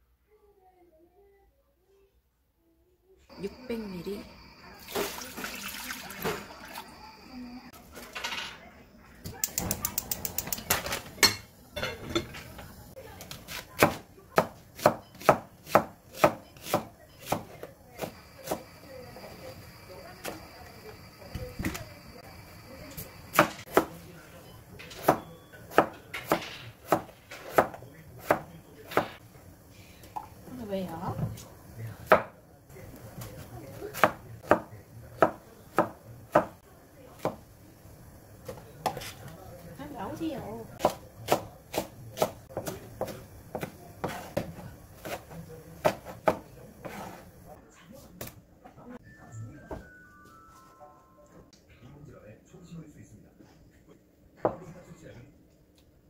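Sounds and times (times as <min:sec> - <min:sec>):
knife slicing onion on board: 0:13.2 - 0:18.7, 0:25.0 - 0:29.2, 0:33.7 - 0:36.5, 0:40.8 - 0:47.3.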